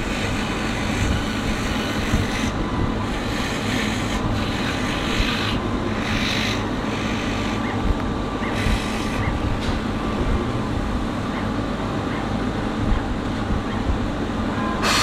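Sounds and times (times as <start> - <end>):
hand rubbing sticker sheet: 0.0 - 7.8
laser cutting machine drone: 0.0 - 13.9, 14.5 - 15.0.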